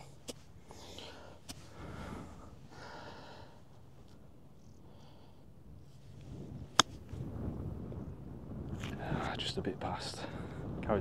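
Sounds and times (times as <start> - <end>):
golf club striking ball: 6.7 - 7.1.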